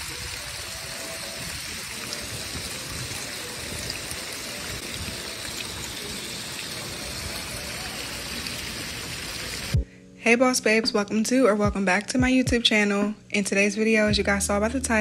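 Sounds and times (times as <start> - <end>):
pool water rushing and trickling: 0.0 - 9.8.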